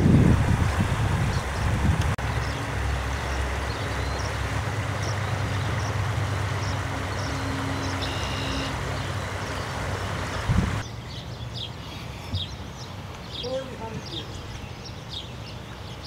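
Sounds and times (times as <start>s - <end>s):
low motor hum: 0.0s - 11.0s
floodwater rushing: 0.0s - 16.0s
small birds chirping: 0.7s - 16.0s.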